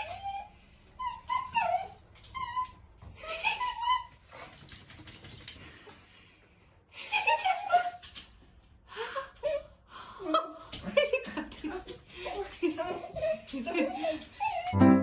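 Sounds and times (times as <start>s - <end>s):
dog whining: 0.0s - 4.2s, 12.4s - 15.0s.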